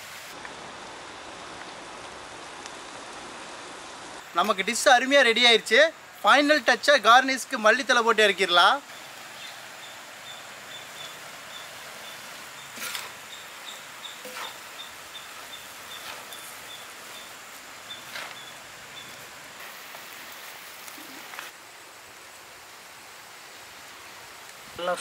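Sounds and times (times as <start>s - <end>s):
food sizzling in a pan: 0.0s - 0.4s, 8.7s - 21.6s.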